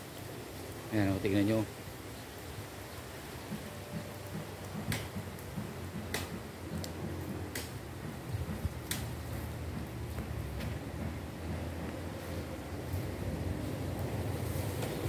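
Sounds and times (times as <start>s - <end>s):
fire crackling and popping: 0.0s - 15.0s
steady low rumble: 3.9s - 15.0s.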